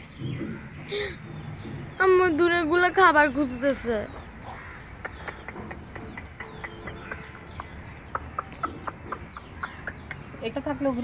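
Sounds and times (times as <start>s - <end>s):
chickens clucking: 3.6s - 10.6s.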